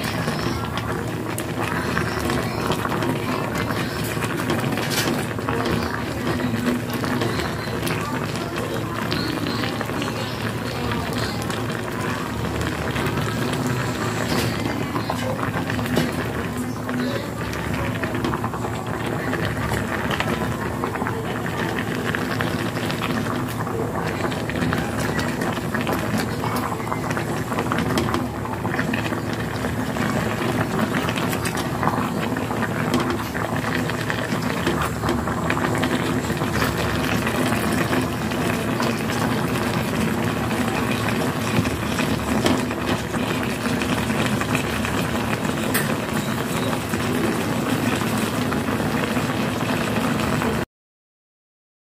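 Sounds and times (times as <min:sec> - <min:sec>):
pot bubbling: 0:00.0 - 0:50.7.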